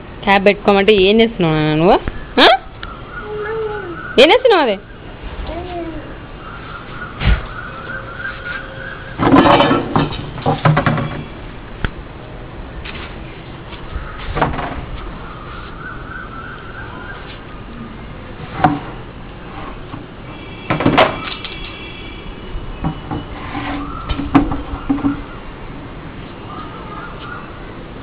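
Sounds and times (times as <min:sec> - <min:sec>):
bucket scraping: 0:22.9 - 0:25.2.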